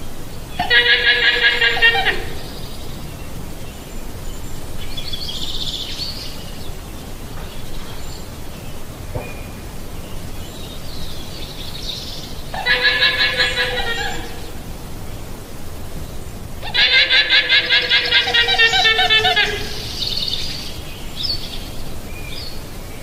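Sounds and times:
steady background hiss: 0:00.0 - 0:23.0
llama calling: 0:00.6 - 0:02.5, 0:12.5 - 0:14.6, 0:16.6 - 0:19.9.

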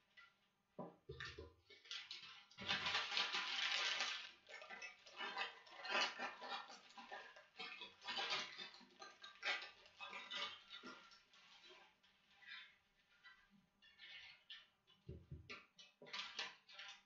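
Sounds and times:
plastic packaging crinkling: 0:02.6 - 0:04.8.

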